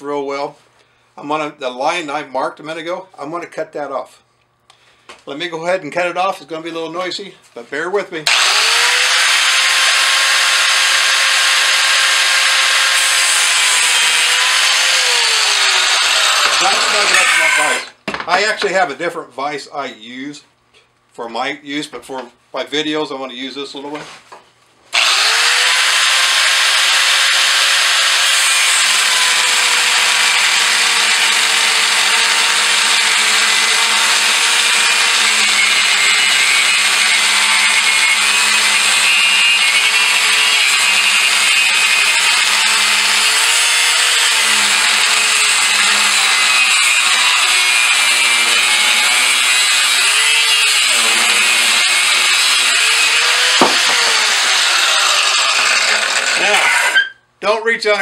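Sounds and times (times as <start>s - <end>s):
angle grinder cutting steel: 8.3s - 18.0s, 25.0s - 57.1s.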